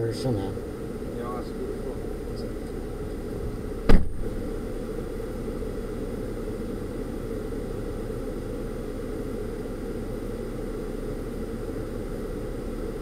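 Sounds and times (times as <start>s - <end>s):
engine and road noise in car: 0.0s - 13.0s
sharp thump: 3.8s - 4.4s.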